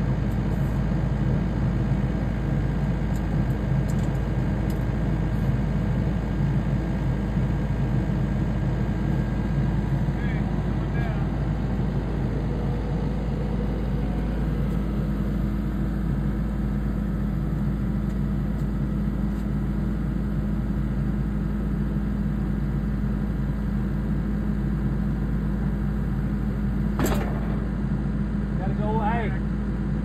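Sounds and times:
diesel engine running steadily: 0.0s - 30.0s
sharp click: 27.0s - 27.7s.

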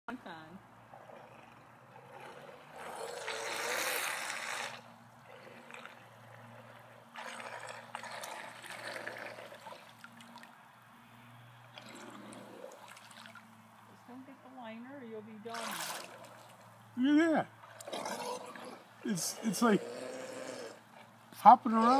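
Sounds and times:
model submarine splashing: 2.4s - 10.8s, 11.7s - 13.7s, 15.4s - 21.9s.

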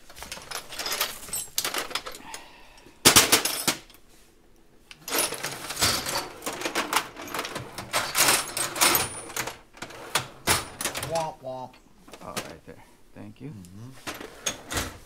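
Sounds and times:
metal tools clattering in drawers: 0.0s - 2.4s, 3.1s - 4.0s, 5.0s - 11.3s.

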